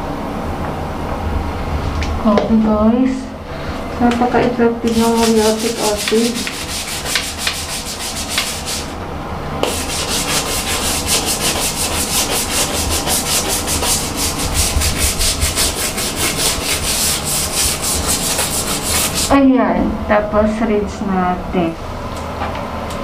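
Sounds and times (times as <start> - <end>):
scrubbing on tile: 4.2 - 9.0, 9.6 - 19.4.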